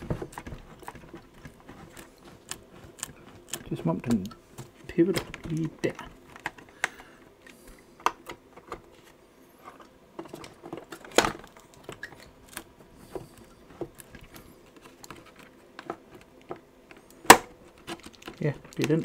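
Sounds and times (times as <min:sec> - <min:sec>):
small parts clicking and rattling: 0:00.0 - 0:04.4, 0:17.7 - 0:19.0.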